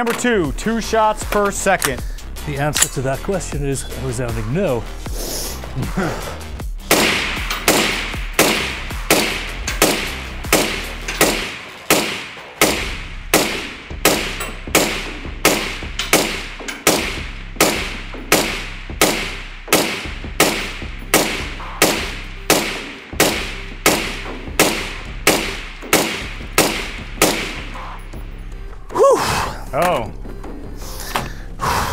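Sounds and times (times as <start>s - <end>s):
suppressed rifle shots: 6.9s - 27.8s.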